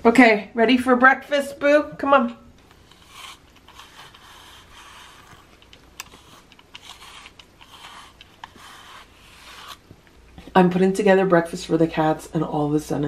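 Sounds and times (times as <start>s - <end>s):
brush strokes through cat fur: 2.7s - 10.0s.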